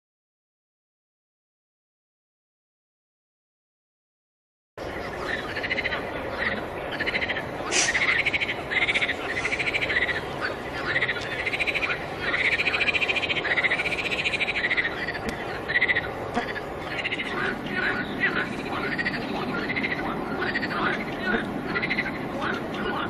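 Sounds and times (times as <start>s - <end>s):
frogs croaking: 4.8s - 23.0s.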